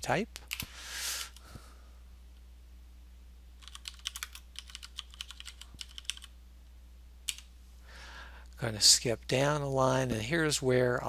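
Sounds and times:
faint low hum: 0.0 - 11.0
computer keyboard typing: 3.6 - 6.3.

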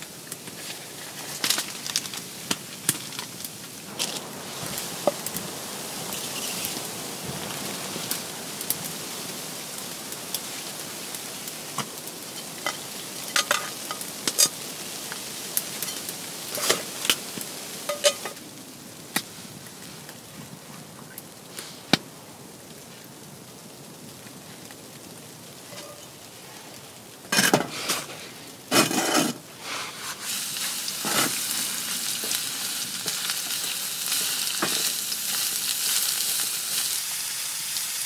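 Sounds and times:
food sizzling in a frying pan: 0.0 - 20.0, 22.8 - 38.0
utensil scraping a pan: 27.4 - 30.4.

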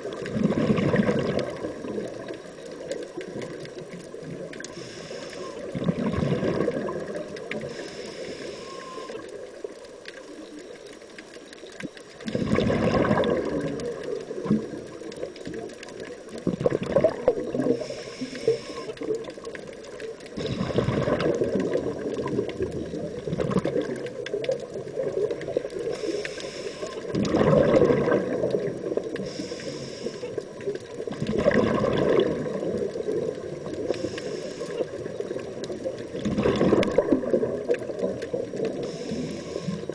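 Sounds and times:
exhaled bubbles gurgling: 0.0 - 39.9
hissing regulator inhalations: 4.6 - 5.8, 7.6 - 9.4, 17.7 - 19.1, 25.8 - 27.1, 29.1 - 30.5, 33.8 - 35.2, 38.7 - 39.9.

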